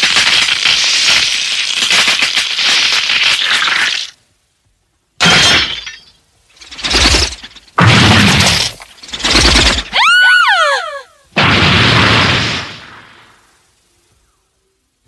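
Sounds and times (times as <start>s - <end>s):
loud crashing impacts: 5.2s - 10.0s, 11.4s - 13.4s.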